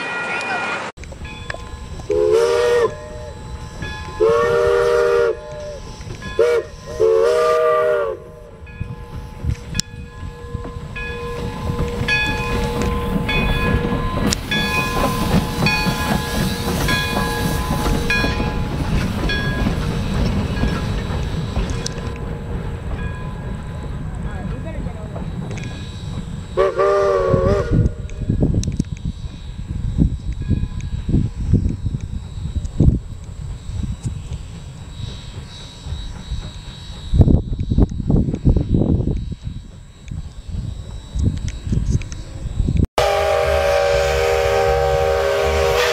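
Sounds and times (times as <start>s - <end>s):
rail clatter: 1.0s - 28.9s
locomotive exhaust chuffs: 1.0s - 45.9s
locomotive rumble: 1.0s - 45.9s
steam locomotive whistle blasts: 1.8s - 22.8s, 25.5s - 30.2s, 43.0s - 45.9s.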